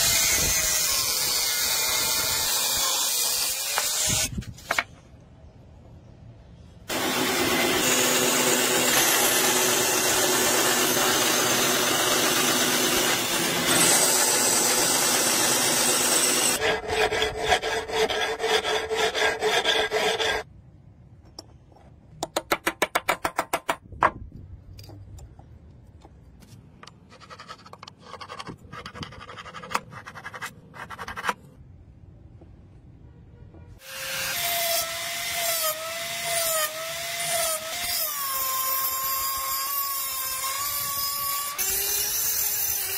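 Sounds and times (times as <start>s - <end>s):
saw cutting brass: 0.0s - 4.3s, 6.9s - 20.5s, 33.8s - 42.9s
file rasping on metal: 16.4s - 20.5s.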